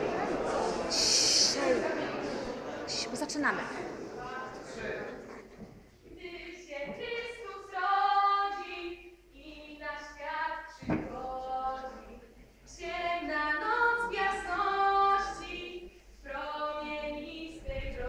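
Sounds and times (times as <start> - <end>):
children singing a carol: 6.1 - 18.0
thump: 10.8 - 11.2.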